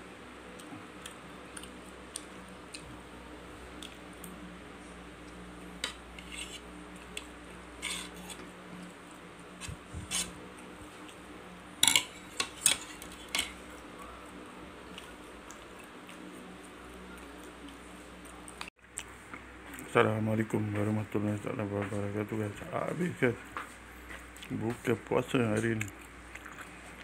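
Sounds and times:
knife and fork clinking on plate: 11.8 - 13.6.

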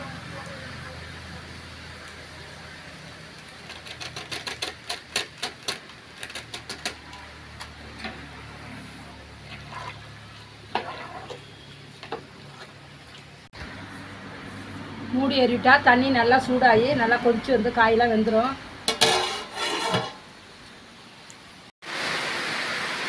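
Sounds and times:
metal ladle scraping a pot: 9.4 - 12.8, 18.9 - 20.3.

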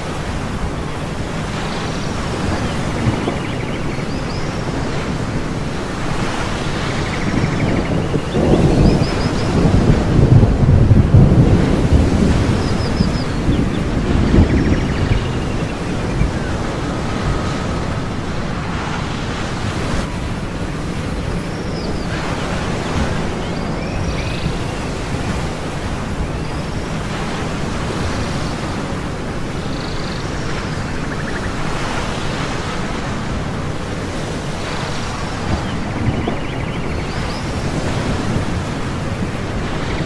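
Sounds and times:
rushing surf and wind: 0.0 - 40.0.

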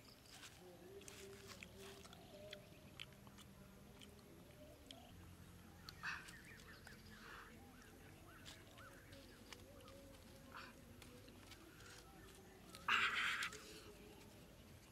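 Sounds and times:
faint chirping animal calls: 4.6 - 10.8.

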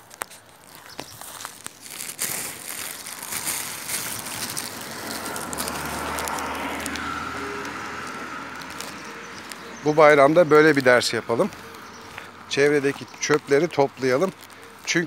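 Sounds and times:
dry grass being trodden: 0.0 - 15.0
plastic bag rustling: 0.0 - 15.0.

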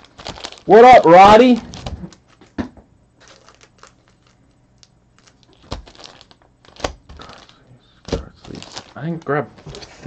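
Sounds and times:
trading cards rustling and clicking: 3.2 - 10.0.

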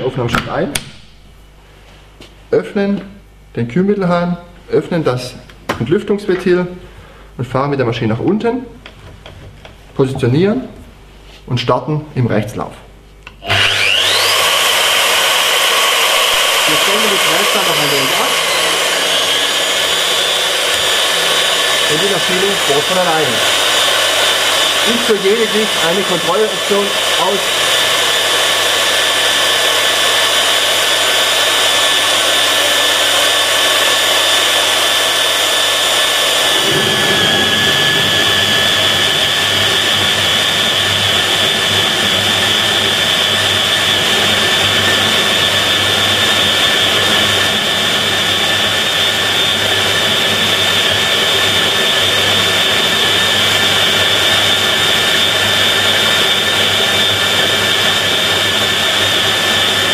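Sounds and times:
core drill motor whine: 13.2 - 59.9
rough cutting noise: 13.4 - 48.4.

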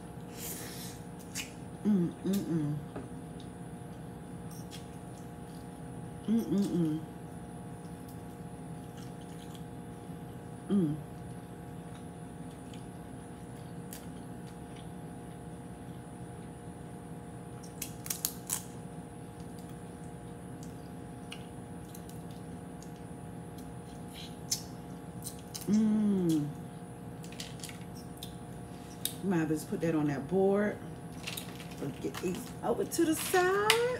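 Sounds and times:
woman saying mm: 1.8 - 2.9, 6.3 - 7.1, 10.7 - 11.1, 25.7 - 26.6.

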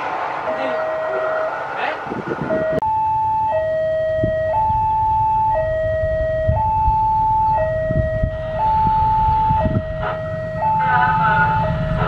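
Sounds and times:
level crossing two-tone alarm: 0.5 - 1.5, 2.4 - 12.0
low rumble: 3.8 - 12.0.

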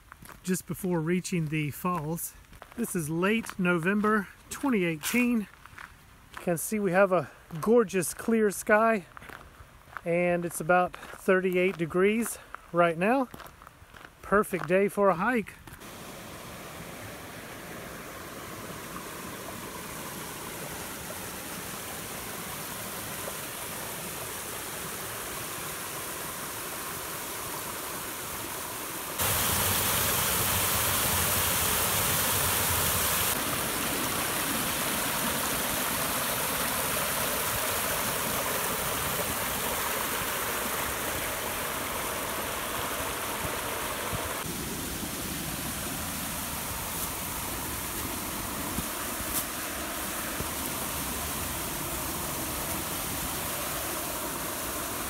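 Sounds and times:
creek water rushing over rocks: 13.9 - 55.0.

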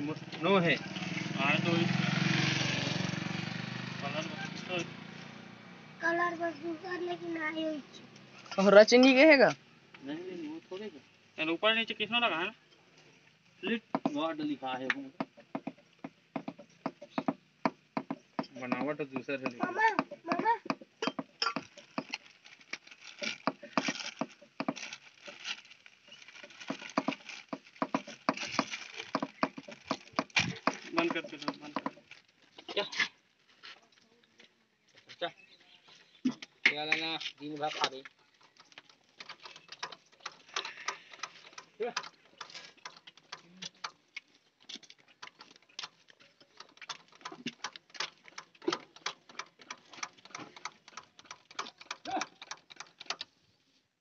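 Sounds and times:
plastic wrapping crinkling: 21.6 - 32.7
birds chirping: 34.3 - 53.6.

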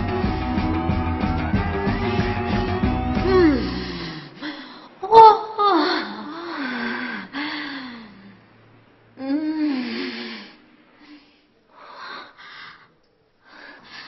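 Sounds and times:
woman moaning: 3.2 - 8.1, 9.2 - 10.6.

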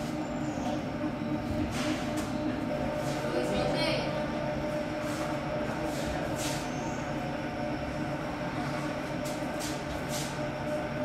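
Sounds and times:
machine hum and rumble: 0.0 - 11.0.

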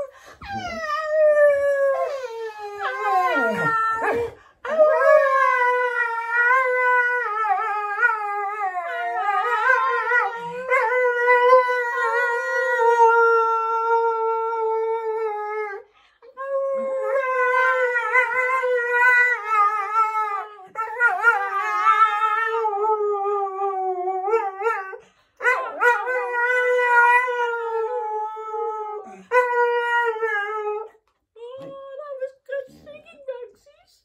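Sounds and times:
dog howling: 0.5 - 15.8, 16.5 - 30.9.

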